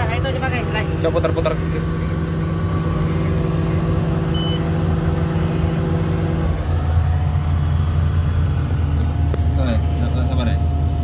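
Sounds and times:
excavator diesel engine idling: 0.0s - 11.0s
short beep: 4.3s - 4.8s.

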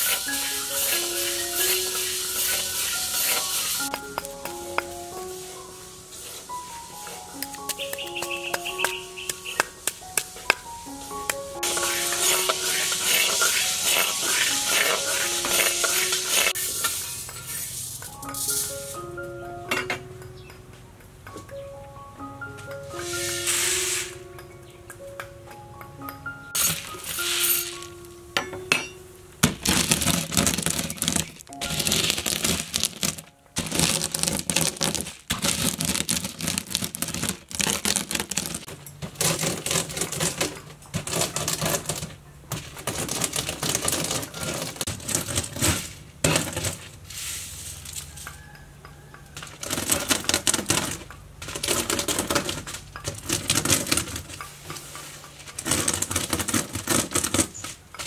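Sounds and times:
dried beans rattling on bamboo tray: 0.0s - 3.9s, 11.6s - 18.2s, 29.4s - 48.6s, 49.4s - 58.0s.

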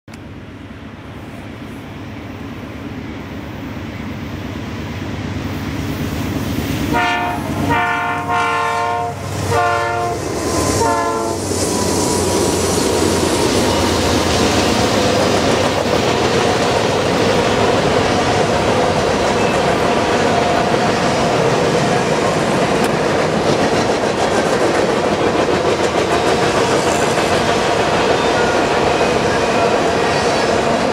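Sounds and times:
train rumble: 0.1s - 30.9s
locomotive air horn blasts: 6.9s - 11.5s
wheels clattering on rails: 11.4s - 30.9s.

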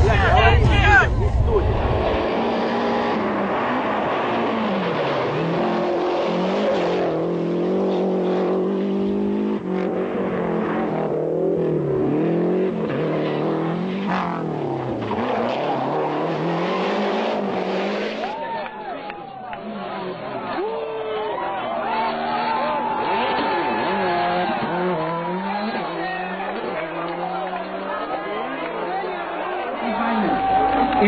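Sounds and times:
rally car engine revving: 0.0s - 18.4s, 19.4s - 20.8s, 21.4s - 31.0s.

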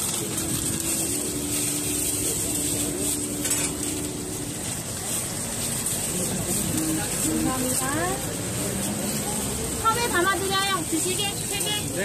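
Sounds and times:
utensils clattering: 0.0s - 9.6s
batter sizzling in a pan: 0.0s - 12.0s.

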